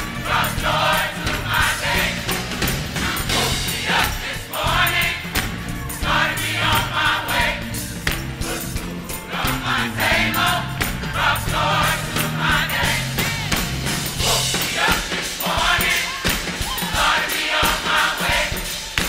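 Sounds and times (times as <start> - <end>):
bass line: 0.0 - 14.8
drums and cymbals: 0.0 - 19.0
gospel choir singing: 0.0 - 19.0
tambourine jingling: 0.0 - 19.0.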